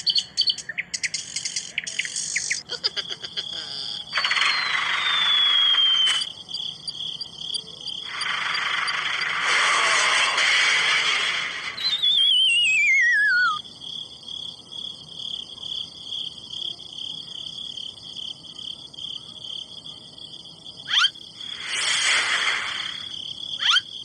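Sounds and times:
warbling whistle sliding down: 0:04.2 - 0:06.3, 0:11.7 - 0:13.6.

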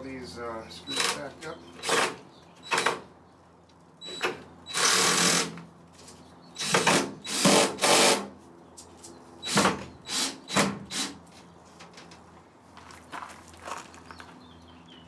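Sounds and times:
cordless drill driving screws: 0:04.1 - 0:05.6, 0:06.6 - 0:08.3.

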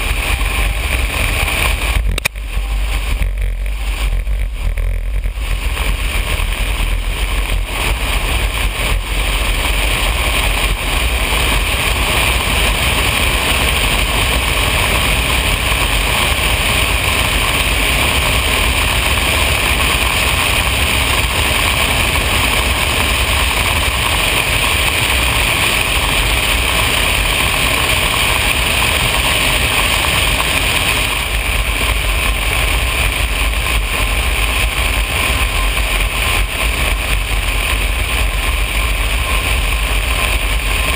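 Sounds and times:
floatplane engine and propeller droning: 0:00.0 - 0:40.9.

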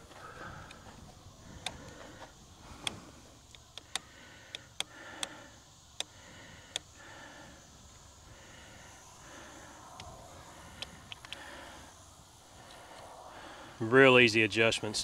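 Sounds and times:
sharp irregular clicks of brake adjuster: 0:00.0 - 0:07.0, 0:09.9 - 0:11.5.

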